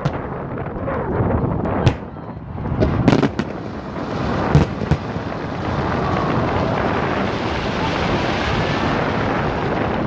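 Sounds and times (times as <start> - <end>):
fireworks bursting: 1.7 - 9.1.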